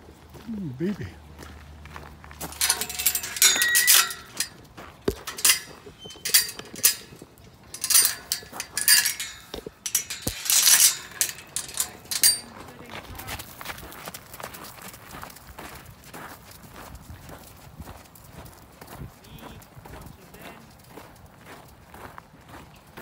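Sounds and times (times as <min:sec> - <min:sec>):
metallic clinking and jingling: 0:02.4 - 0:13.5.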